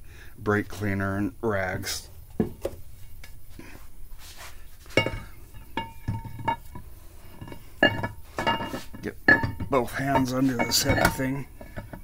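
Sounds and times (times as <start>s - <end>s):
faint scuffs and knocks: 2.3s - 9.1s
ringing metal clank: 5.0s - 6.8s, 7.4s - 12.0s.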